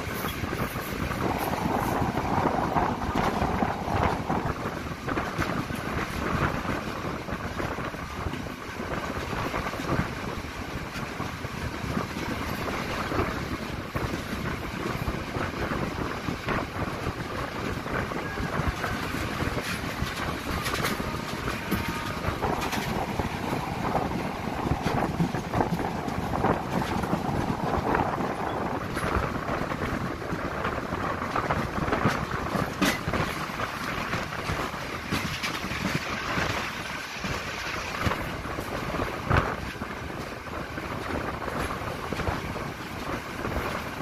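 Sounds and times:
train rumble: 0.0 - 44.0
wheels clattering on rails: 0.0 - 44.0
wind buffeting microphone: 0.0 - 44.0.

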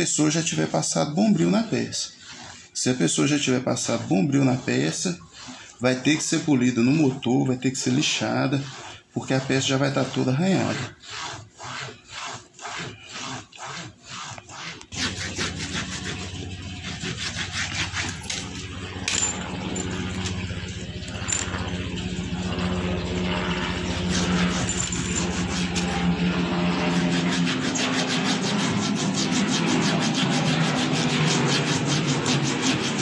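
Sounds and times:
low steady hum: 14.9 - 28.0
cloth rubbing metal chain: 15.9 - 22.3, 23.7 - 26.1.

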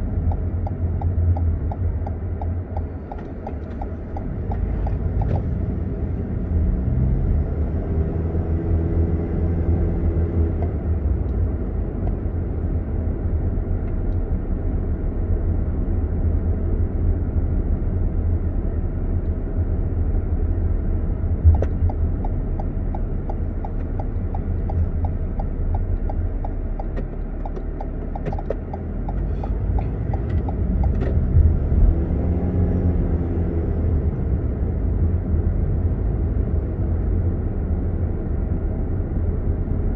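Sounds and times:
car engine and tyres rumbling: 0.0 - 39.9
light regular ticking: 0.1 - 5.4, 21.5 - 31.2.

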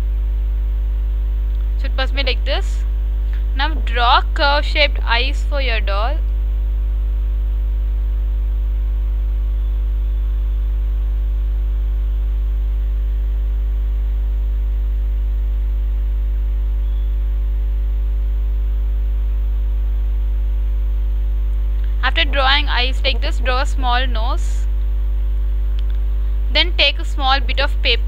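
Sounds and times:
low electrical hum: 0.0 - 28.0.

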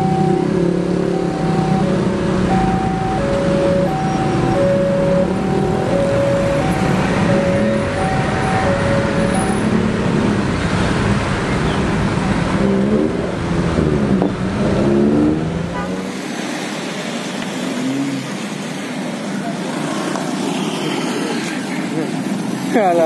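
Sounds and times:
truck engine running: 0.0 - 14.6
motorbike engine revving: 0.0 - 16.2
passing traffic: 0.0 - 23.0.

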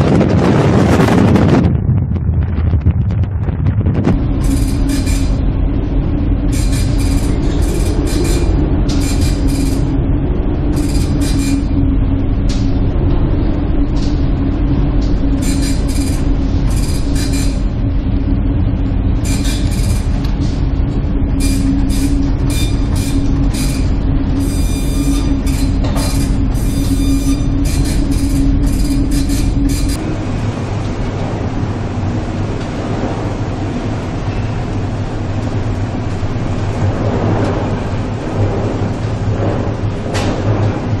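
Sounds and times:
wind rushing: 0.0 - 15.4
ship engine drone: 0.0 - 41.0
high squealing creaks: 4.3 - 5.4, 6.4 - 10.0, 10.7 - 11.8, 15.3 - 17.7, 19.2 - 20.5, 21.4 - 30.0.

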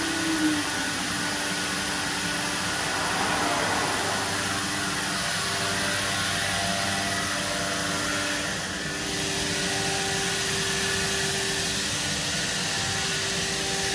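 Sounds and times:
steady hum tones: 0.0 - 7.5
shop machinery rushing drone: 0.0 - 9.6.

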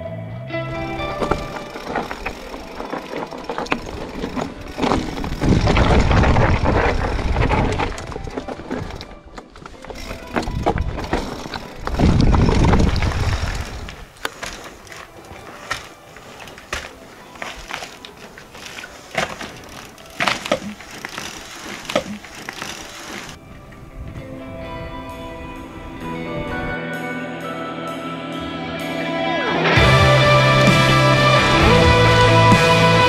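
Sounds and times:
music: 0.0 - 5.4, 7.7 - 12.4, 14.6 - 21.3, 23.4 - 33.0
bike clattering: 0.7 - 23.4
tyres crunching over stones: 0.8 - 23.4.

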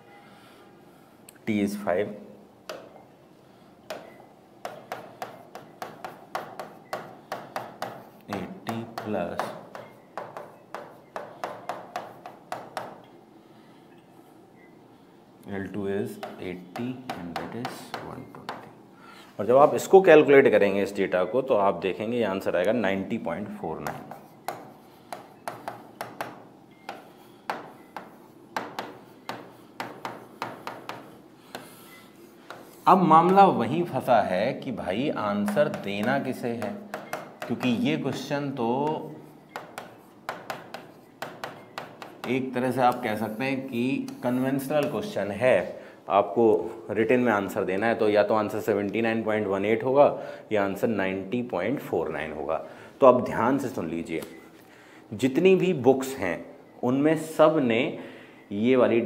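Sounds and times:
stylus tapping on glass: 35.4 - 43.0.

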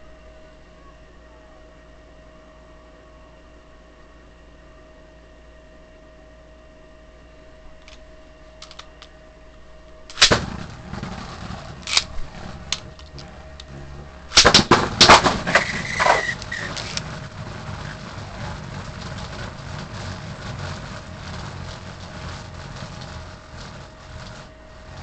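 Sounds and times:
spinning tops whirring: 8.6 - 9.1, 10.0 - 25.0
spinning tops clashing: 10.1 - 20.0.

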